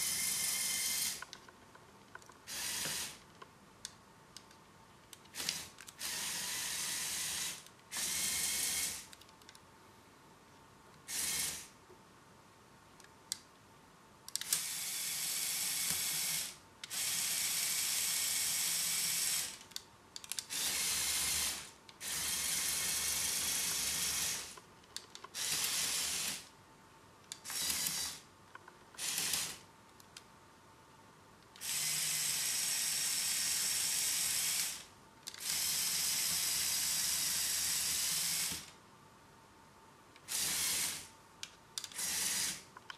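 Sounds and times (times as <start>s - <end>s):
toy vehicle motors and tracks whirring: 0.0s - 1.3s, 2.4s - 3.2s, 5.3s - 9.2s, 11.1s - 11.7s, 14.4s - 24.6s, 25.2s - 26.5s, 27.3s - 28.2s, 29.0s - 29.6s, 31.6s - 38.7s, 40.2s - 41.1s, 41.8s - 42.7s.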